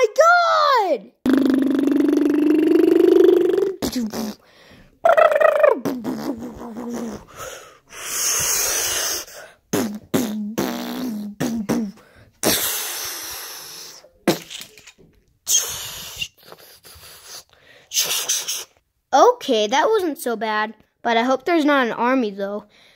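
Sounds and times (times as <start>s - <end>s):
child making mouth sound effects: 0.0s - 14.6s, 15.5s - 18.8s.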